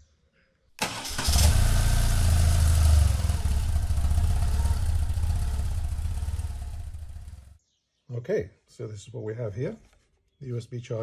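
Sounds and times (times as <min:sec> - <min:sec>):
motorcycle engine rumbling: 0:00.8 - 0:07.6.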